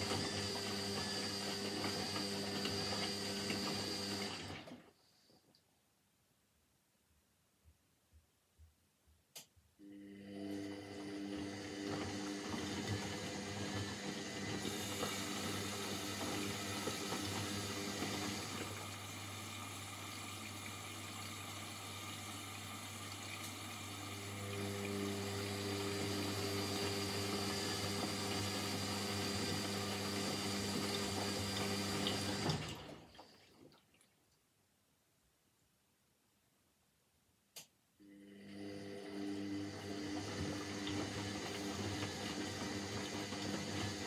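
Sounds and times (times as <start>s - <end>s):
washing machine water rushing: 0.0s - 4.8s, 10.0s - 34.0s, 38.2s - 44.0s.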